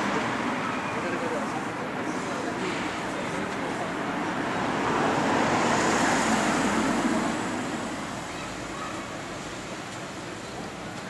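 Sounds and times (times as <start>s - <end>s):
street traffic noise: 0.0s - 11.0s
car driving past: 4.6s - 8.1s.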